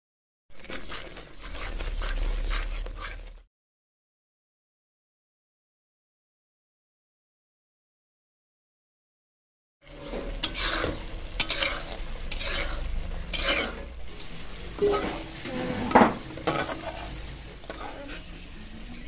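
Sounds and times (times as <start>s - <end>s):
low sizzle: 0.5s - 3.5s, 9.8s - 19.0s
metal spatula scraping a pan: 0.5s - 3.5s, 9.8s - 19.0s.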